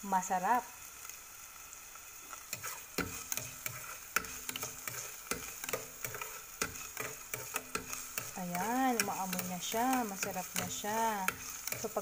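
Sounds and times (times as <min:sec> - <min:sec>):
onion sizzling in hot oil: 0:00.0 - 0:12.0
utensil scraping a pot: 0:02.5 - 0:12.0.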